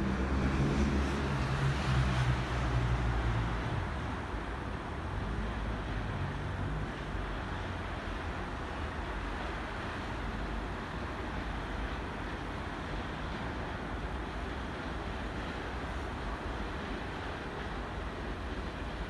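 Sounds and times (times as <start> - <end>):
train low rumble and hiss: 0.0 - 19.0.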